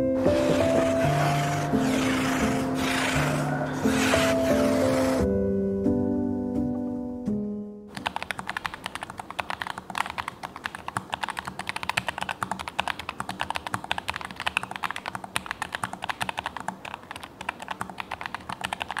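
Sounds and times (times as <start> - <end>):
mechanical keyboard typing: 7.9 - 19.0.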